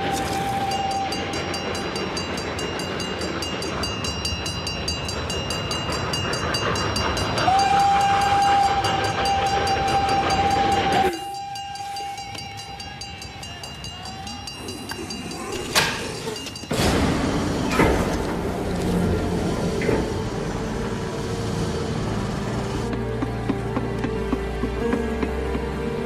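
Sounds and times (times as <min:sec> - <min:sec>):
steam locomotive whistle: 0:00.0 - 0:01.7, 0:07.3 - 0:14.9
train wheels and carriages rattling: 0:00.0 - 0:26.0.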